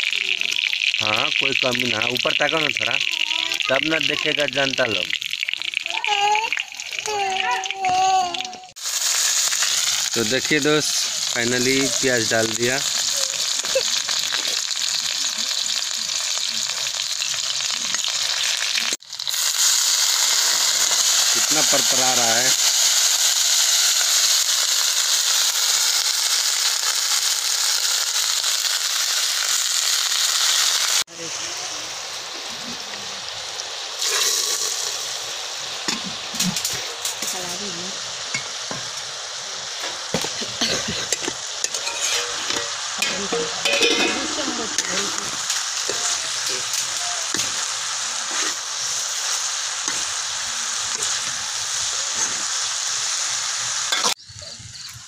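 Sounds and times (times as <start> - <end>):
onions sizzling in hot oil: 0.0 - 55.0
ladle stirring: 41.0 - 46.2.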